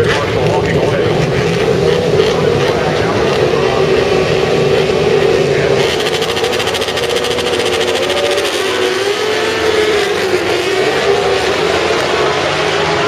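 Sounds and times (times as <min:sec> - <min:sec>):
racing motorcycles revving hard: 0:00.0 - 0:13.0.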